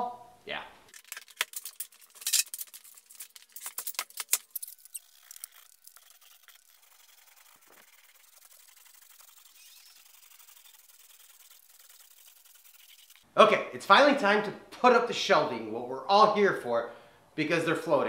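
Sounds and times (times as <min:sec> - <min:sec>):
paint roller rubbing: 0:04.5 - 0:13.2.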